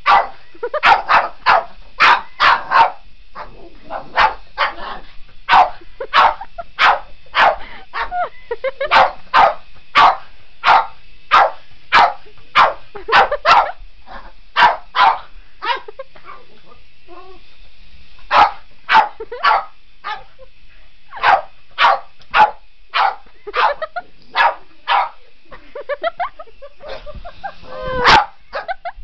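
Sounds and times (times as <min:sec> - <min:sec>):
dog barking sharply: 0:00.0 - 0:03.0, 0:05.5 - 0:07.6, 0:08.9 - 0:13.7, 0:14.6 - 0:15.2, 0:18.3 - 0:20.2, 0:21.2 - 0:23.8, 0:28.0 - 0:28.4.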